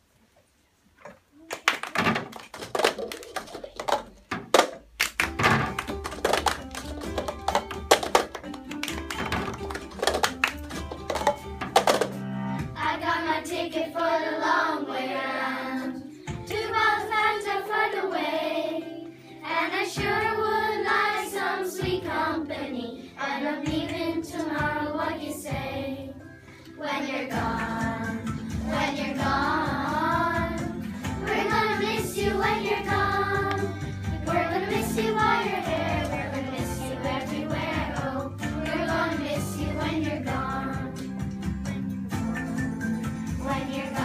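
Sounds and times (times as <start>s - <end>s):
musical accompaniment: 5.0s - 44.0s
children singing: 12.8s - 26.2s, 26.8s - 41.1s, 43.4s - 44.0s.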